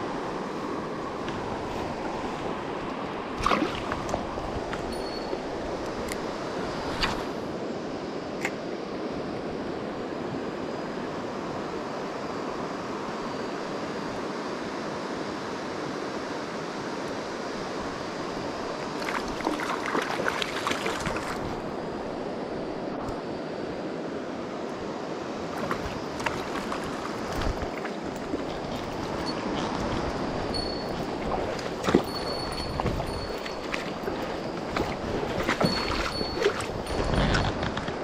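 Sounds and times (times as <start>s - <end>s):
river current rushing: 0.0s - 10.2s, 15.8s - 38.0s
fish splashing: 30.6s - 37.0s.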